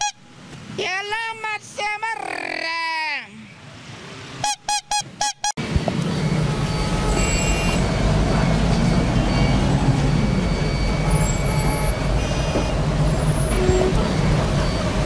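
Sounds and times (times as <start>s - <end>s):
traffic engines rumbling: 0.0s - 15.0s
brief high-pitched tones: 8.8s - 14.8s.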